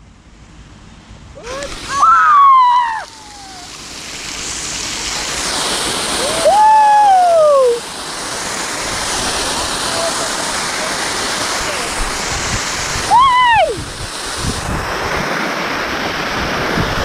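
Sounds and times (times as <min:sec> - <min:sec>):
fountain water rushing and splashing: 0:01.3 - 0:17.0
long falling cries: 0:01.4 - 0:03.8, 0:06.2 - 0:07.8, 0:13.1 - 0:13.8.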